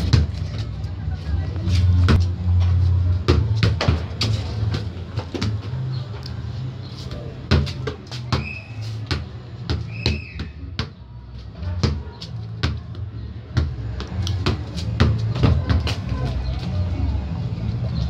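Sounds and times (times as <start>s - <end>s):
football thumping on concrete: 0.0s - 0.6s, 2.0s - 2.3s, 3.2s - 5.8s, 7.4s - 11.0s, 11.7s - 16.1s.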